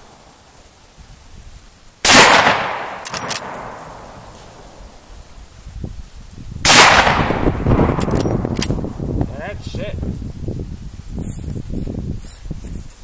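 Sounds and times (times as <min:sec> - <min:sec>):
rifle shot echoing: 0:02.0 - 0:04.8, 0:06.6 - 0:08.8
rifle lever clicking: 0:03.0 - 0:03.5, 0:08.0 - 0:08.8.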